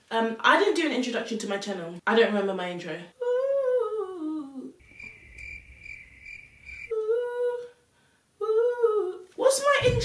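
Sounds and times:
woman humming: 3.2s - 4.8s, 6.9s - 7.8s, 8.4s - 9.2s
cricket chirping: 4.8s - 7.0s.

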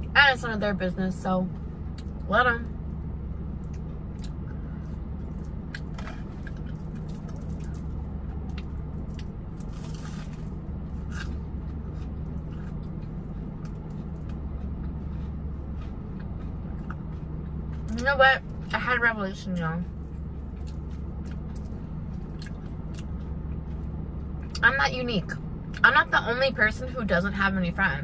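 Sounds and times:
steady low hum: 0.0s - 28.0s
chewing with wet mouth clicks: 3.6s - 18.8s, 19.9s - 24.6s
crunchy bite into crust: 5.2s - 13.0s.

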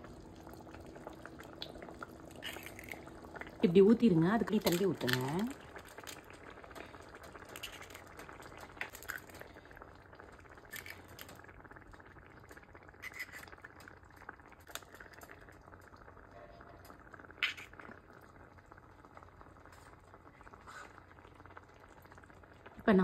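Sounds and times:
curry bubbling in a pot: 0.0s - 23.0s
eggshells cracking: 1.6s - 3.6s, 4.5s - 9.6s, 10.5s - 11.4s, 13.0s - 15.4s, 17.4s - 18.0s.

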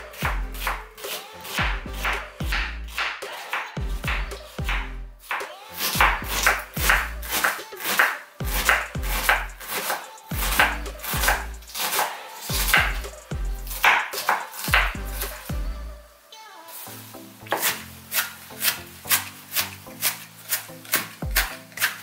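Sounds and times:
music with deep bass beat: 0.0s - 1.0s, 1.6s - 3.0s, 3.8s - 5.2s, 6.0s - 7.3s, 8.4s - 9.7s, 10.3s - 11.8s, 12.5s - 14.0s, 14.7s - 16.0s
knife dicing on wooden board: 19.5s - 22.0s.

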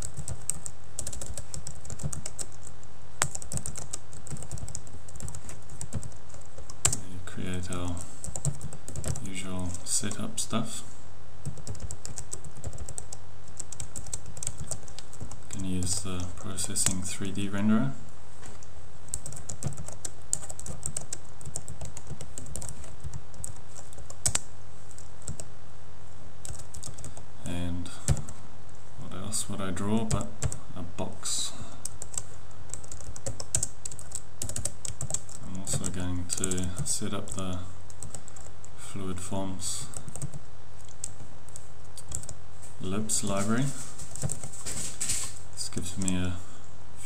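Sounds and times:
keyboard typing: 0.0s - 7.0s, 7.6s - 10.2s, 11.4s - 17.0s, 19.1s - 25.5s, 26.4s - 27.2s, 31.8s - 38.5s, 39.9s - 42.4s, 44.1s - 44.5s
steady low hum: 0.0s - 47.0s.

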